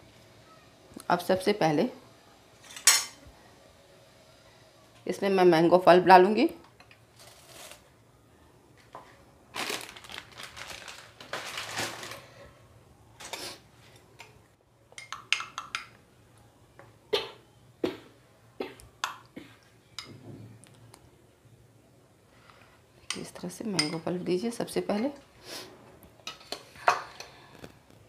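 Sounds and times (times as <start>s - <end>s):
spoon clinking against bowls: 15.0s - 16.0s, 23.1s - 24.1s.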